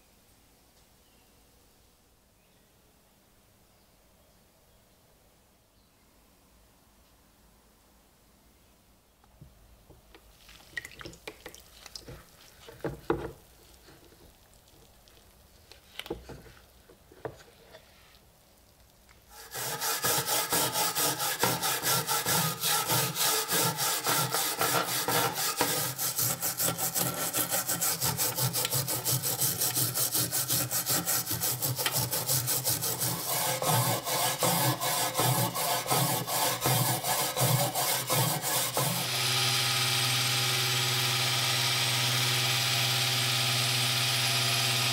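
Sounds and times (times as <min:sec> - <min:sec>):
scrubber scraping steel blade: 0:19.3 - 0:39.2.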